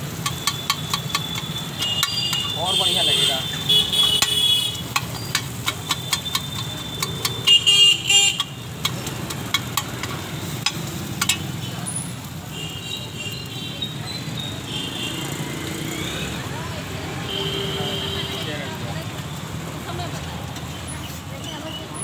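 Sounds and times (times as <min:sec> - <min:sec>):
street traffic hum: 0:00.0 - 0:22.0
metal spatula tapping on griddle: 0:00.1 - 0:11.6
vehicle horn tooting: 0:01.2 - 0:05.0, 0:06.2 - 0:08.5, 0:17.2 - 0:18.7.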